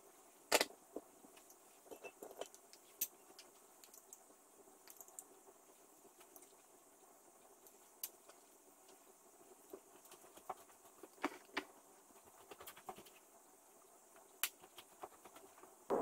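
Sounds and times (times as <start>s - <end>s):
low hiss: 0.0s - 16.0s
small clicks and taps: 1.3s - 5.3s.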